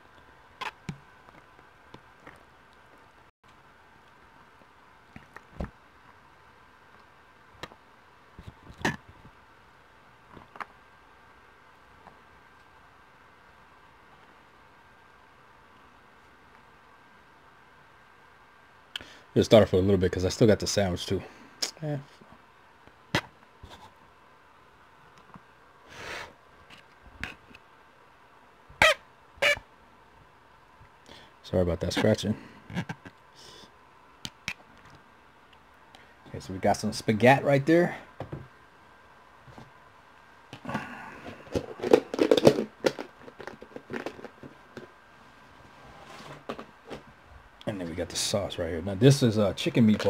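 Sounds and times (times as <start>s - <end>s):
handling knocks and clicks: 41.5s - 45.0s.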